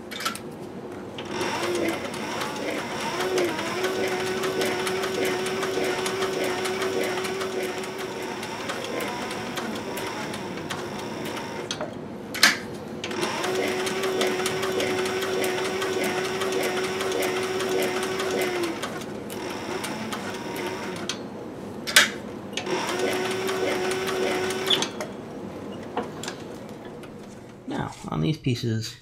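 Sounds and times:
sewing machine stitching leather: 1.2s - 11.8s, 13.0s - 21.2s, 22.6s - 25.1s.

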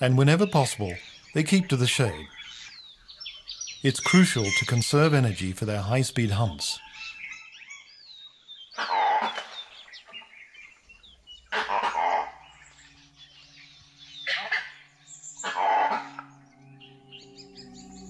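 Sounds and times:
birds chirping faintly: 0.0s - 18.0s
bark-like animal calls: 8.8s - 9.6s, 11.5s - 12.6s, 14.2s - 14.8s, 15.4s - 16.3s
low musical drone: 10.7s - 18.0s.

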